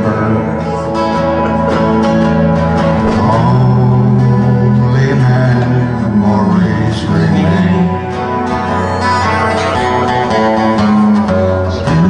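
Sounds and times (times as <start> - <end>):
person singing: 0.0 - 2.1, 2.7 - 12.0
acoustic guitar strumming: 0.0 - 12.0
harmonica: 7.8 - 12.0.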